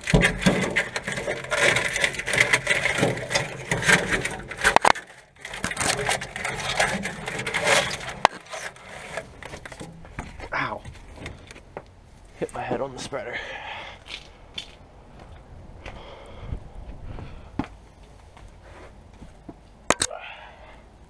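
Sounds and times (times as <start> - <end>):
cable scraping on metal frame: 0.0 - 11.6.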